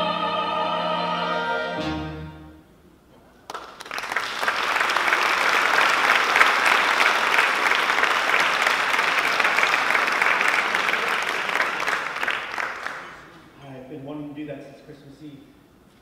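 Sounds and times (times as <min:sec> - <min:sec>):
audience applauding: 0:03.4 - 0:13.3.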